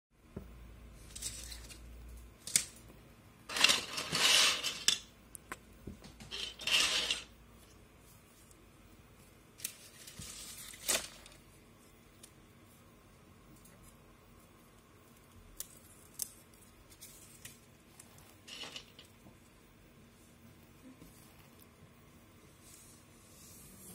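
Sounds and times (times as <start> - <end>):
plastic crinkling and rustling: 9.6 - 11.5.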